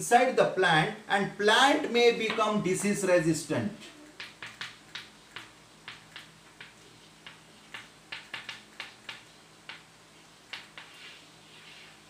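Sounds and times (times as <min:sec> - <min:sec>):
chalk tapping and scratching: 0:04.2 - 0:09.9, 0:10.5 - 0:12.0.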